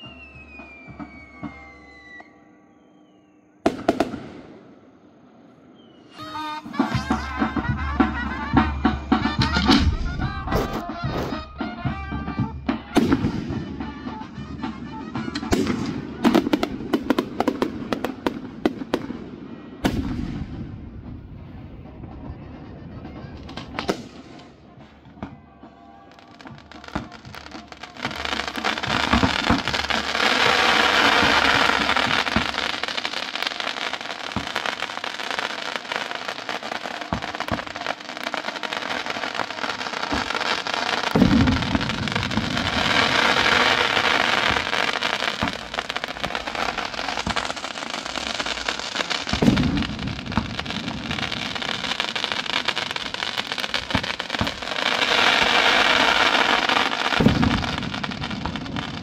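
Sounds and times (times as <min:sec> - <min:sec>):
fireworks crackling and hissing: 0:00.0 - 0:59.0
heavy firework bang: 0:06.4 - 0:19.2, 0:23.2 - 0:33.0, 0:41.0 - 0:59.0.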